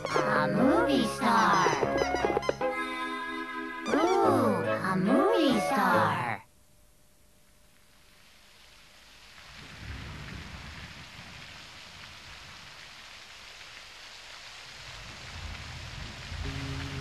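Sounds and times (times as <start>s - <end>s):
steady rain: 7.4s - 17.0s
low rumble of thunder: 9.4s - 12.9s, 14.8s - 17.0s.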